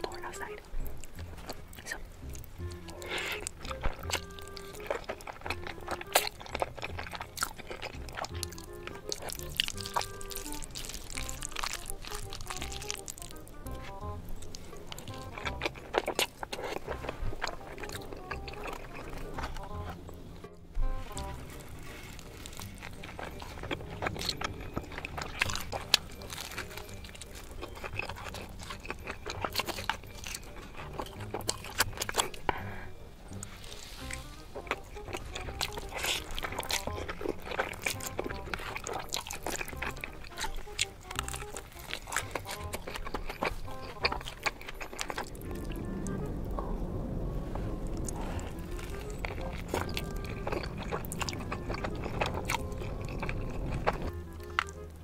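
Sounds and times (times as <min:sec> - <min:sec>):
chewing: 0:00.0 - 0:55.0
mouth clicks and smacks: 0:00.0 - 0:55.0
quiet background music: 0:00.0 - 0:55.0
slurping noodles: 0:02.7 - 0:13.9.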